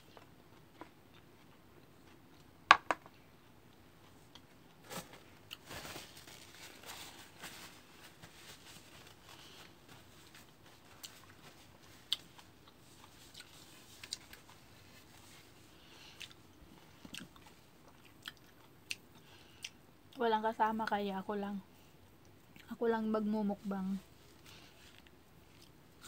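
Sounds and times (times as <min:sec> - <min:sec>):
person chewing soft fruit: 0:00.0 - 0:05.7, 0:09.1 - 0:20.2, 0:24.2 - 0:26.0
soft rustling: 0:04.1 - 0:17.6.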